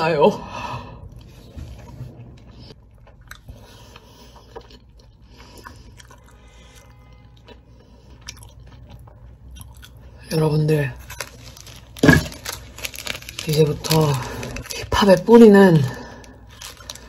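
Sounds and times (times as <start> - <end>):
slow chewing: 1.0 - 10.2, 15.8 - 17.0.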